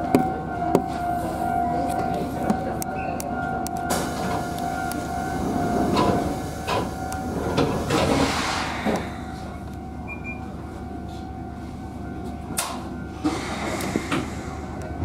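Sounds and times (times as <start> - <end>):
electric train humming: 0.0 - 15.0
air hiss: 8.1 - 9.4.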